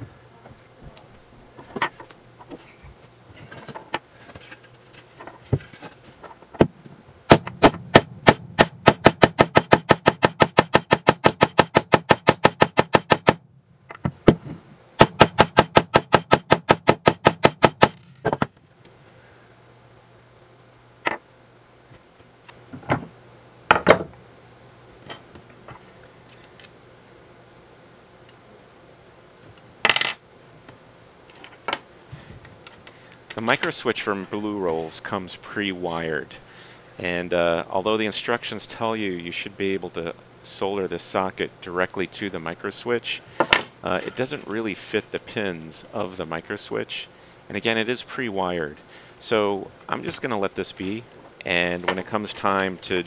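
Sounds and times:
rapid pounding with wooden board: 0:07.3 - 0:13.4, 0:15.0 - 0:18.5.

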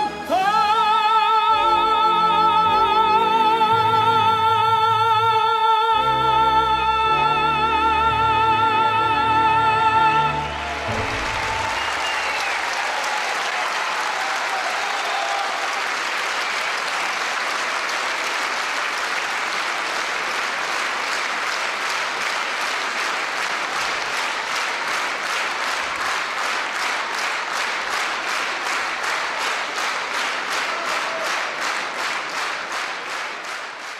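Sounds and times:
audience applauding: 0:09.2 - 0:33.9
rhythmic clapping in unison: 0:10.3 - 0:33.9.

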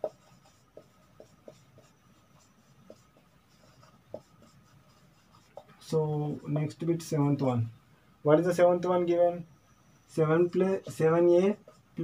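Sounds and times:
marker scratching on whiteboard: 0:00.0 - 0:06.8, 0:10.2 - 0:12.0.

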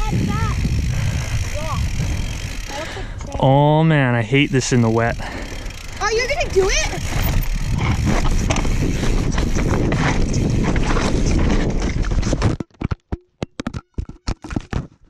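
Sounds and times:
wind rushing over microphone: 0:00.0 - 0:03.4, 0:06.4 - 0:12.5
bike rolling over rough ground: 0:00.0 - 0:13.0
sharp clicks and knocks: 0:11.8 - 0:15.0.

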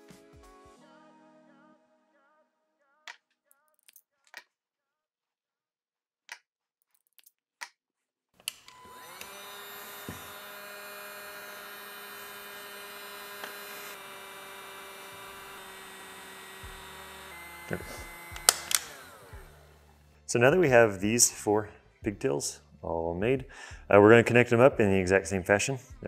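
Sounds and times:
heat gun fan humming: 0:08.4 - 0:20.0.

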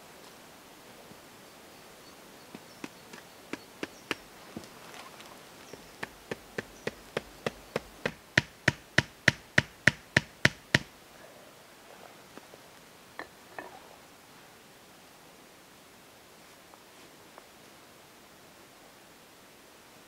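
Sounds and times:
rustling: 0:02.4 - 0:09.0
hammering knocks: 0:06.0 - 0:10.9.

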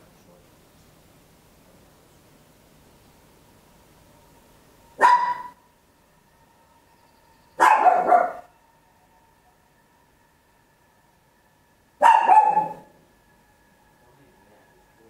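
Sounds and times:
small dog barking: 0:05.0 - 0:05.6, 0:07.6 - 0:08.5, 0:12.0 - 0:13.0.

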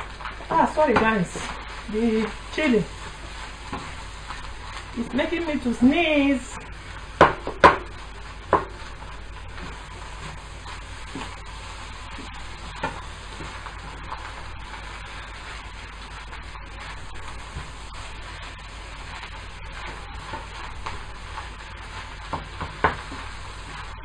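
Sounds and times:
rice sizzling in a frying pan: 0:00.0 - 0:24.0
spatula scraping and tapping pan: 0:00.2 - 0:04.9, 0:07.2 - 0:24.0.

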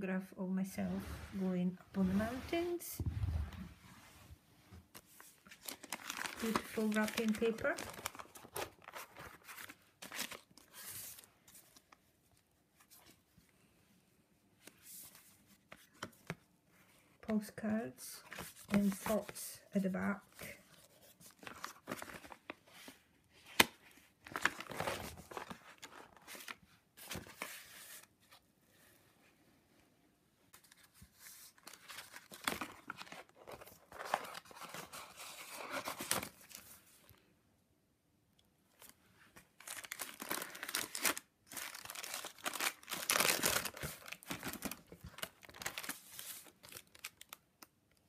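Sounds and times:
paper and plastic rustling: 0:04.8 - 0:12.1, 0:18.2 - 0:29.0, 0:30.5 - 0:37.2, 0:38.8 - 0:47.4.

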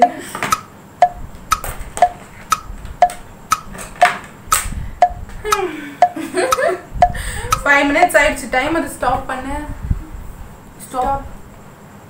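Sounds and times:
timer tick-tock: 0:00.5 - 0:07.7.

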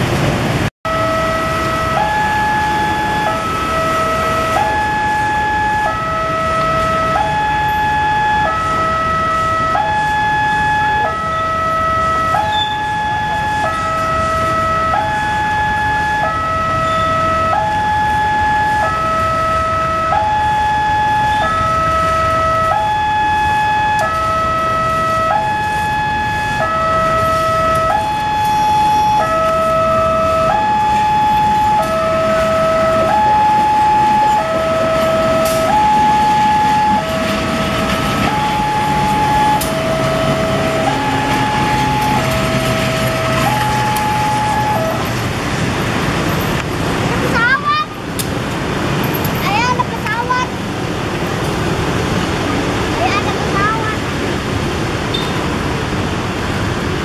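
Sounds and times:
two-tone electronic alarm: 0:00.9 - 0:45.1.

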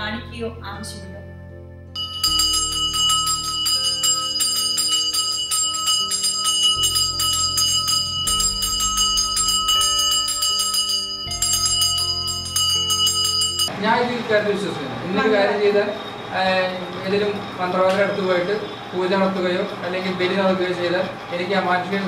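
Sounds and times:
low background music: 0:00.0 - 0:22.0
hand bell rung rapidly: 0:02.0 - 0:13.7.

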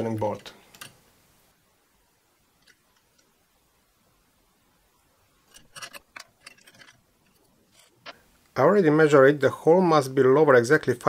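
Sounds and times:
small metal parts clicking: 0:05.5 - 0:08.2.

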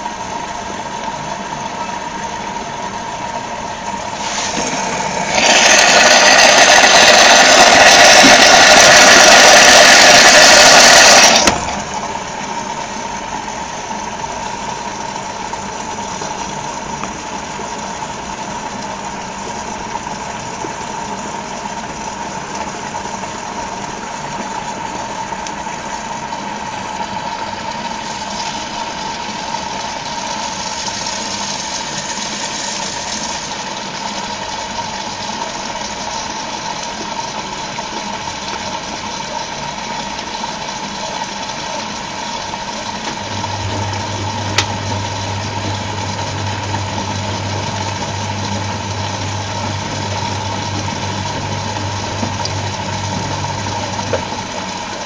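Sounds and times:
washing machine motor whine: 0:00.0 - 0:55.0
rushing hiss of water: 0:04.0 - 0:12.2, 0:25.1 - 0:38.1.

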